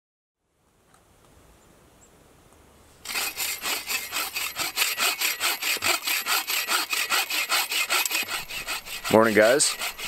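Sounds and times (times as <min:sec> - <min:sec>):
hand saw cutting log: 0:03.0 - 0:10.0.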